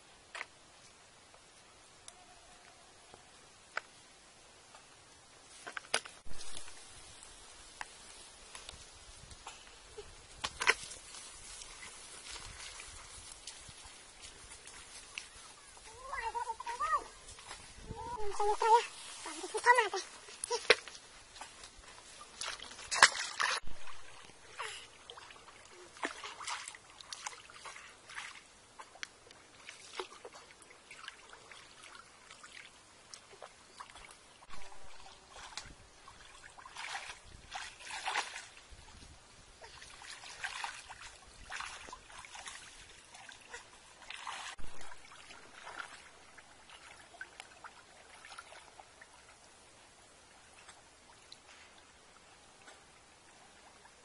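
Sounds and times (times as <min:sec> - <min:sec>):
water splashing and sloshing: 0:04.6 - 0:54.0.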